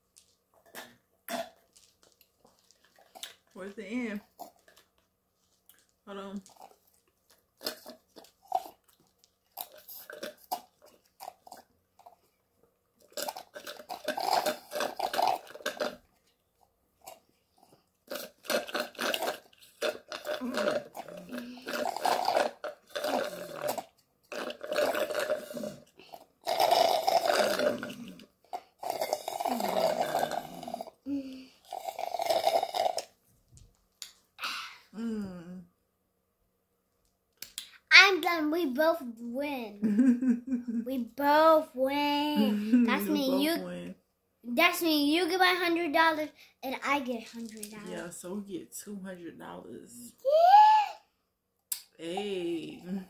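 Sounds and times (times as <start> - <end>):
people slurping through straws: 13.1 - 16.0, 18.1 - 33.1.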